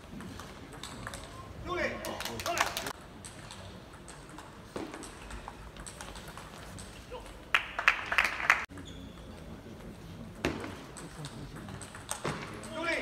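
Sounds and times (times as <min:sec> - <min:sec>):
people clapping: 0:01.9 - 0:03.0, 0:07.5 - 0:08.7.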